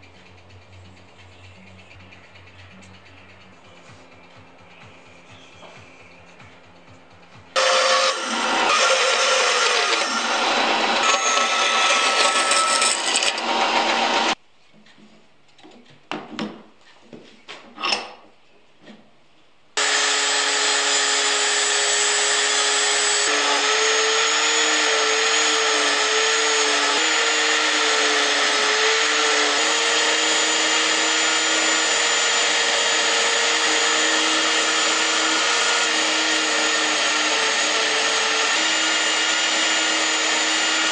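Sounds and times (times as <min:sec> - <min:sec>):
band saw cutting wood: 0:07.6 - 0:14.4, 0:19.8 - 0:40.9
rotary tool sanding whine: 0:07.6 - 0:14.4, 0:19.8 - 0:40.9.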